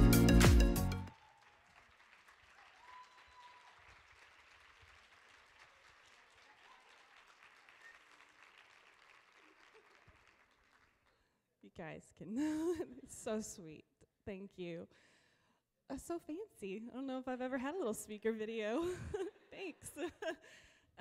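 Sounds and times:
music: 0.0s - 1.1s
faint audience applause: 0.4s - 11.3s.

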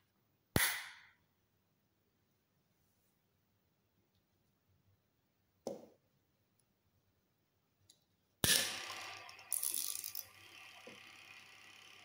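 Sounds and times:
motor whirring: 8.5s - 12.0s.

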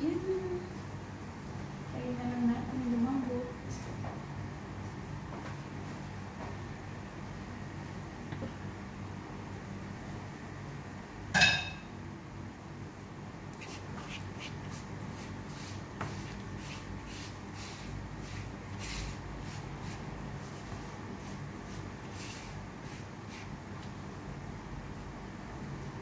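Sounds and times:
steady low hum: 0.0s - 26.0s
dishware clinking: 11.4s - 11.9s.

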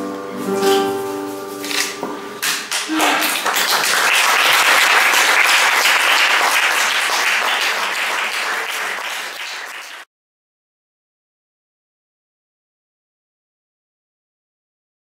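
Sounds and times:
audience applauding: 2.4s - 10.1s.

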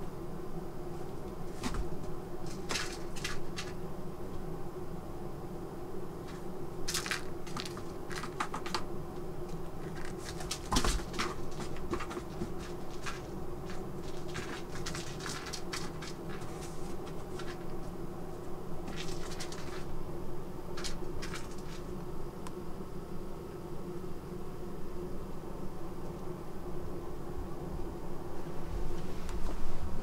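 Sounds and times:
steady low hum: 0.0s - 30.0s
cat paws scratching and rustling: 1.5s - 3.8s, 6.2s - 8.9s, 9.5s - 18.0s, 18.8s - 20.0s, 20.8s - 21.9s.

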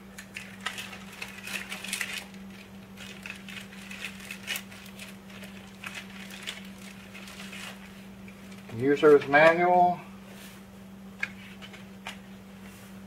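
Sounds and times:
steady low hum: 0.0s - 13.0s
plastic bag crinkling: 0.2s - 9.4s.

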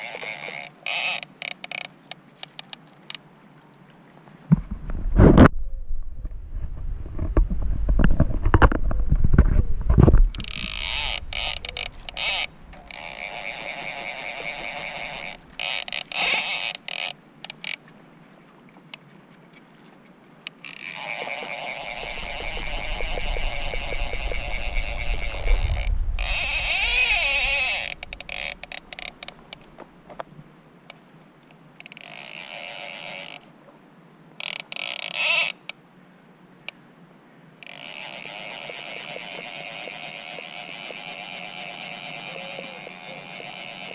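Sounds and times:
fly reel ratchet buzzing: 0.0s - 1.9s, 10.3s - 17.8s, 20.6s - 29.7s, 37.6s - 43.9s
handling and water rumble: 2.2s - 30.6s.

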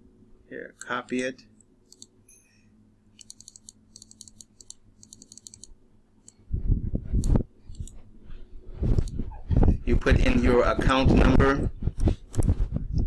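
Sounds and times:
keyboard and mouse clicking: 1.9s - 2.1s, 3.2s - 6.4s, 7.2s - 8.0s.

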